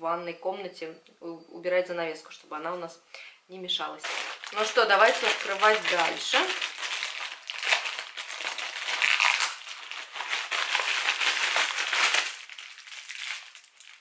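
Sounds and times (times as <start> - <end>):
plastic packaging crinkling: 4.0 - 14.0.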